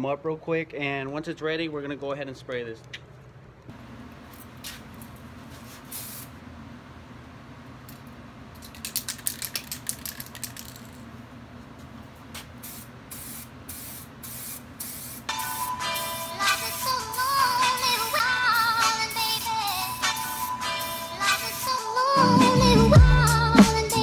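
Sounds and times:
spray hissing: 5.6 - 6.3, 12.4 - 15.6
spray can rattling: 8.6 - 11.1, 12.3 - 15.4.

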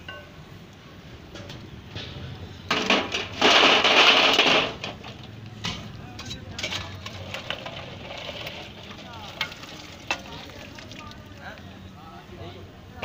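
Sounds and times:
water rushing: 7.1 - 11.7
eggs splashing into water: 7.4 - 11.6.

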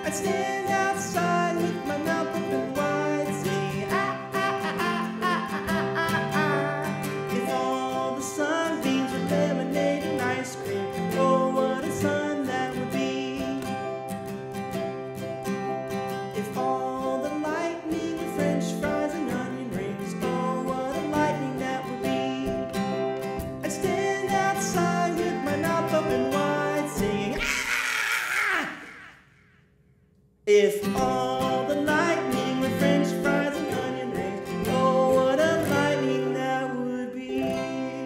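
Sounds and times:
acoustic guitar and ukulele strumming: 0.0 - 27.6, 30.6 - 38.0.

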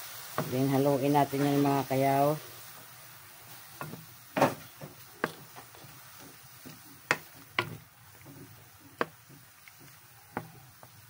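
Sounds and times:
spatula knocking against wok: 3.8 - 11.0.

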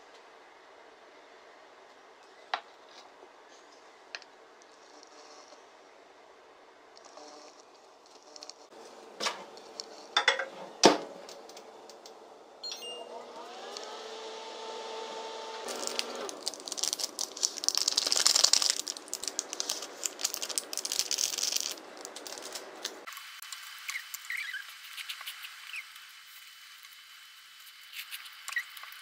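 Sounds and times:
plastic sachet crinkling and rattling: 15.7 - 23.1.

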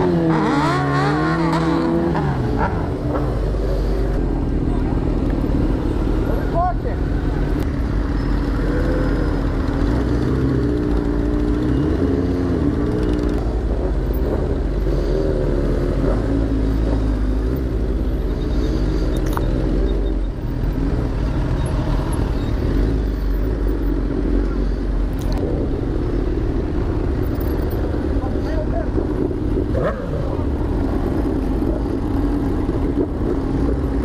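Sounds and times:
motorcycle engines revving: 0.0 - 34.0.

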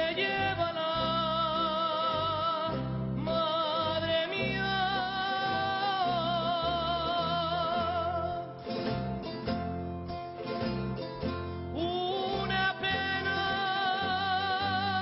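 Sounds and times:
man singing with vibrato: 0.0 - 8.9, 11.7 - 15.0
acoustic guitar: 0.0 - 15.0.

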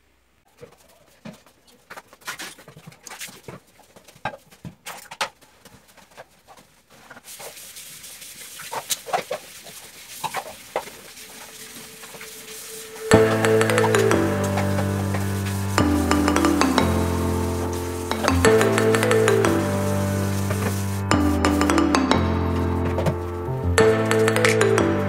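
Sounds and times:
background music: 12.6 - 25.0.

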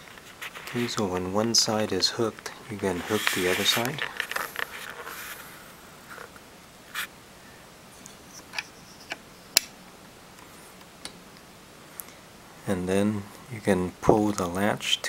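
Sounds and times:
soft scrape: 2.8 - 6.3.

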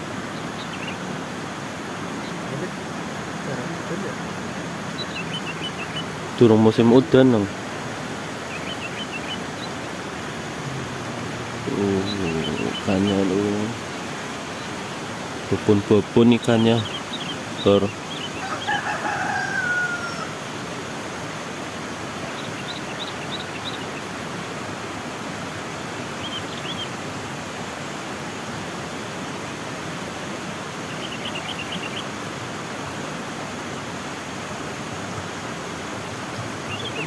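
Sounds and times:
small birds chirping: 0.0 - 20.8, 21.6 - 24.6, 25.6 - 27.1, 30.7 - 32.2, 36.4 - 37.0
stream flowing: 0.0 - 37.0
rooster crowing: 18.3 - 20.5.

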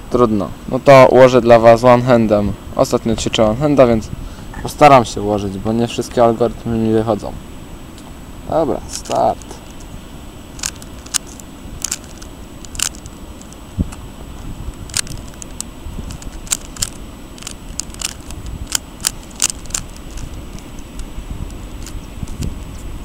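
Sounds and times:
puzzle cube clicking: 10.6 - 13.6, 14.8 - 21.0.

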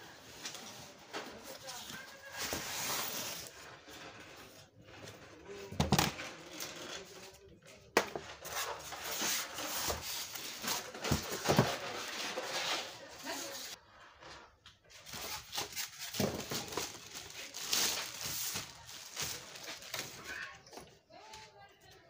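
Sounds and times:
styrofoam rubbing and scraping: 8.4 - 13.8.

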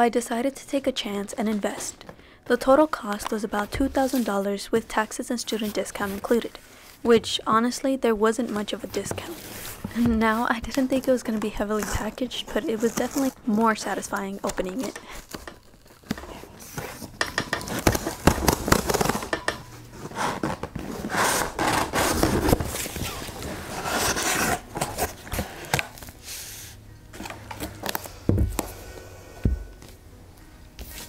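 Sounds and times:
cardboard flaps scraping and rustling: 8.9 - 13.4, 16.0 - 26.2
cardboard box tearing: 11.8 - 13.4, 17.7 - 19.4, 20.0 - 26.0.

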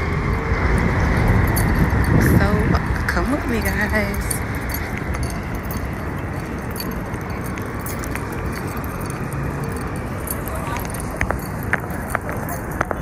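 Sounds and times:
street noise: 0.0 - 13.0
wind rumbling on microphone: 0.0 - 13.0.

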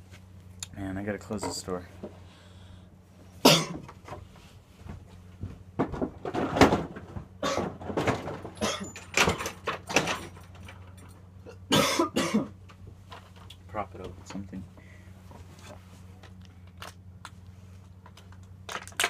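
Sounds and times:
knocks and rattles: 4.9 - 11.3.

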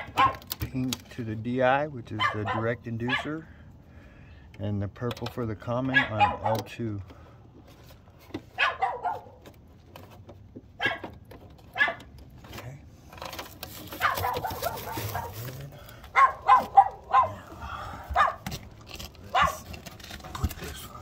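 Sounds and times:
dog barking: 0.0 - 0.5, 2.2 - 3.4, 5.9 - 6.7, 8.6 - 9.4, 10.8 - 11.1, 11.7 - 12.1, 14.0 - 17.4, 18.1 - 18.4, 19.3 - 19.7.

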